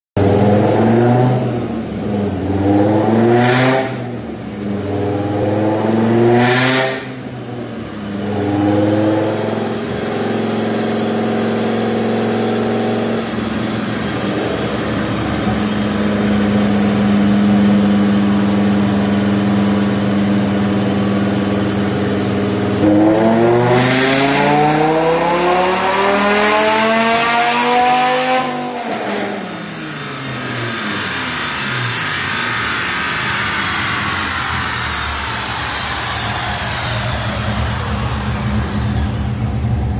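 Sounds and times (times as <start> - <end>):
sports car engine revving: 0.2 - 39.9.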